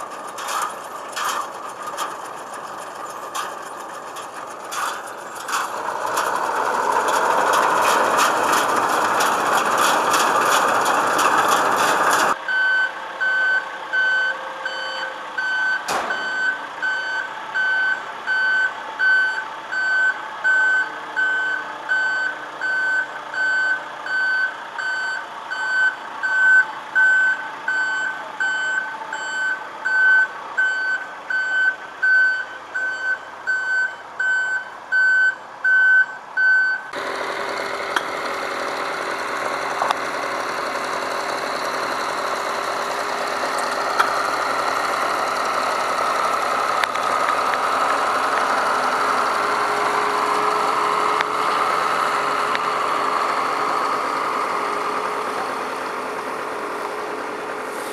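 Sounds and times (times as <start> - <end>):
diesel engine running: 0.0 - 35.6, 36.9 - 57.9
reversing alarm beeping: 12.5 - 37.0.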